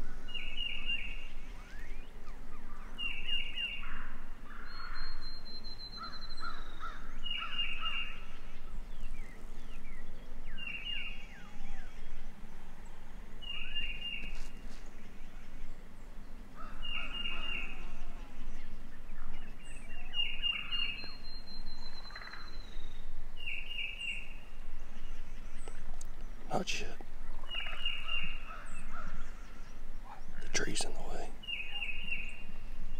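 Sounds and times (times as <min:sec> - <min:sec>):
songbird singing: 0:00.0 - 0:32.9
short bird calls: 0:16.5 - 0:25.8, 0:26.4 - 0:32.6.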